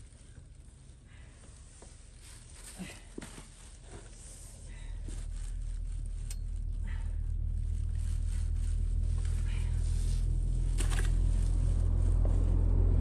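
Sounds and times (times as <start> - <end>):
vehicle engine droning: 3.6 - 13.0.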